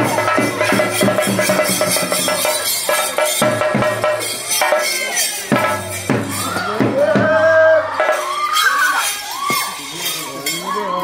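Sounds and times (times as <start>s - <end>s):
drumming: 0.0s - 11.0s
metallic jingling: 8.1s - 11.0s.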